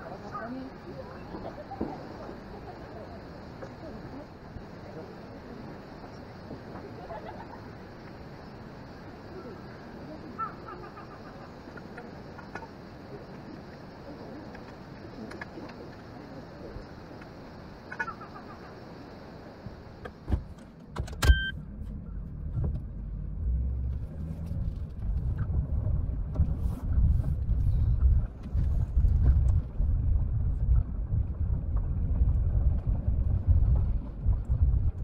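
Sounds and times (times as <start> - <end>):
short electronic beep: 21.2 - 21.6
car rumbling on gravel road: 21.6 - 35.0.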